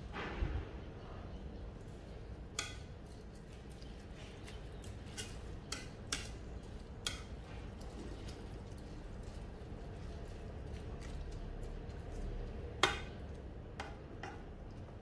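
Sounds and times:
spatula knocking pot: 5.2 - 6.4, 7.0 - 7.4, 12.8 - 14.7.

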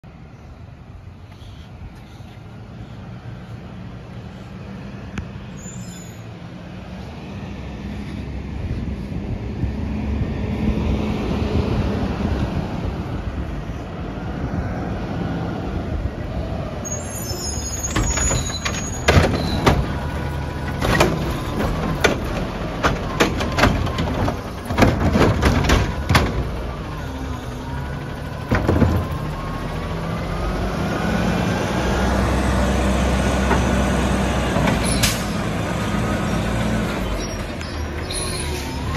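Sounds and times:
garbage truck diesel engine: 0.0 - 38.9
metal clanks of cart arm: 17.5 - 26.7, 28.4 - 29.4.

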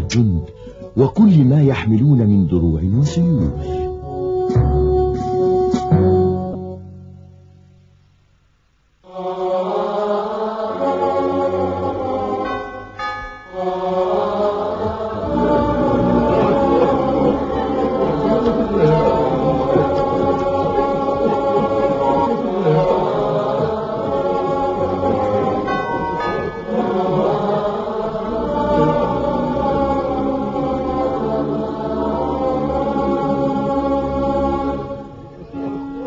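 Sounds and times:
choir chanting held tones: 9.0 - 36.0.

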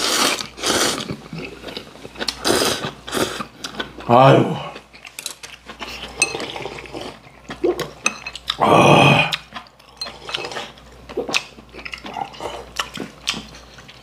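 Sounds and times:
noodle soup slurping: 0.0 - 1.2.

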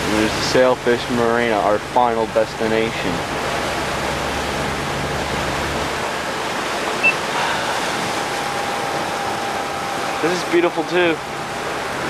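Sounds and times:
wind and water rushing: 0.0 - 12.0
short high blip: 7.0 - 7.2.

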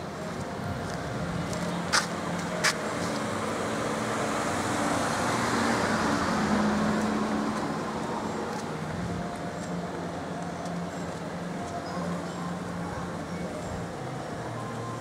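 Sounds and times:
car driving past: 3.5 - 8.5.

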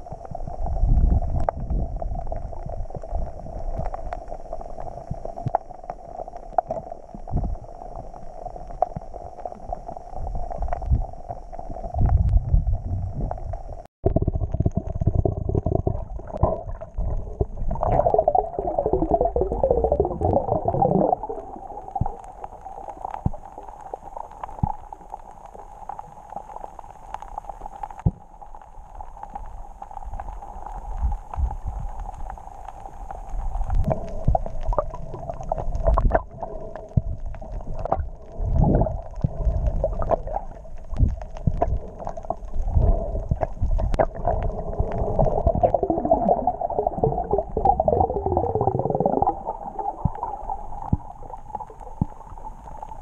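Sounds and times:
underwater rumbling and gurgling: 0.0 - 53.0
underwater clicks: 13.2 - 53.0.

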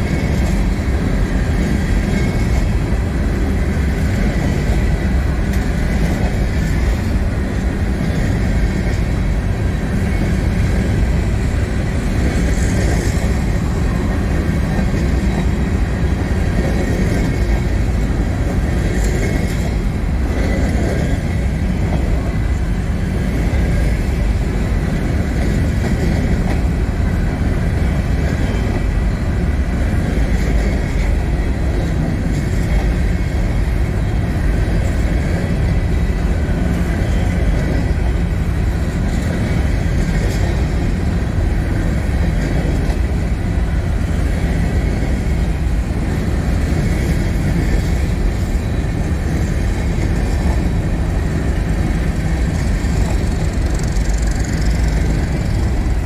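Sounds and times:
freight train wheels rumbling: 0.0 - 56.0.

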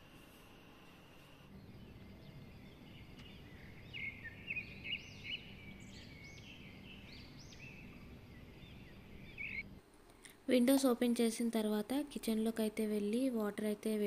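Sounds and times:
low hum: 0.0 - 10.4
small birds chirping: 1.5 - 9.8.

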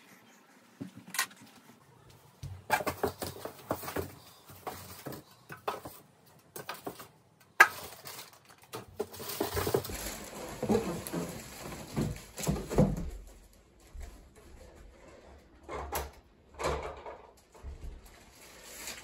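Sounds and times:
plastic wrap crackling: 6.7 - 13.1, 18.2 - 19.0.

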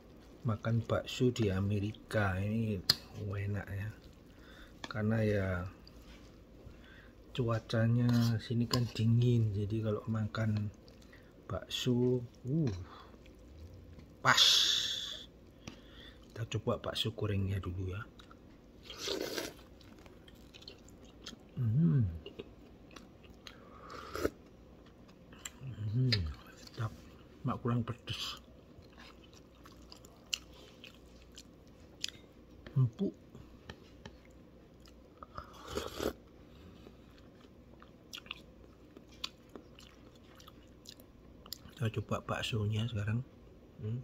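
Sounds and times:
quiet chewing: 5.6 - 14.2, 18.1 - 27.3, 28.2 - 41.8
person humming mmm: 21.6 - 22.3.

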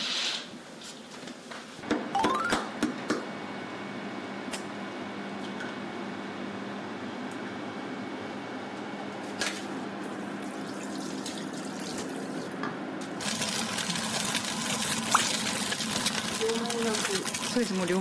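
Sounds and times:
eggs sizzling in a pan: 13.2 - 18.0.

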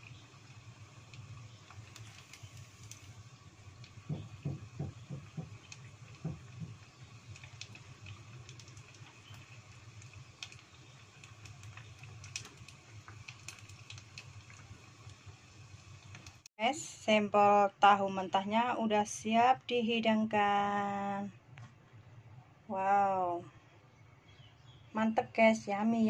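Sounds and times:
oil sizzling and popping: 0.0 - 16.5
soft knocks: 4.1 - 5.6, 6.2 - 6.8.

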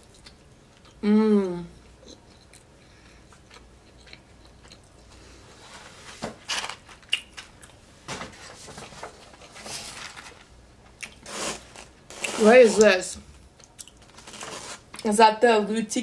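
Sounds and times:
chewing crunchy fried food: 0.0 - 1.0, 1.8 - 5.4, 13.6 - 15.0.

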